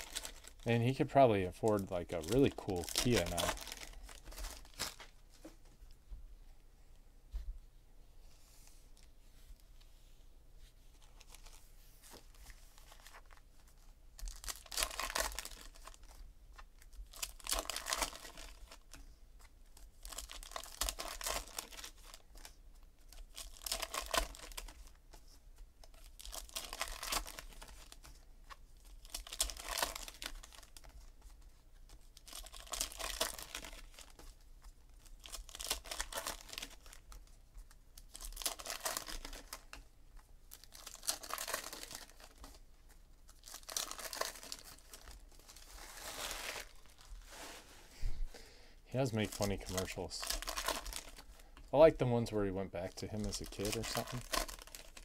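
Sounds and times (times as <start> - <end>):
foil wrappers tearing and crinkling: 0.0 - 5.1, 14.2 - 16.2, 16.8 - 18.9, 19.8 - 25.0, 25.9 - 28.2, 28.8 - 39.8, 40.5 - 42.6, 43.3 - 47.6, 49.0 - 51.4, 52.8 - 55.0.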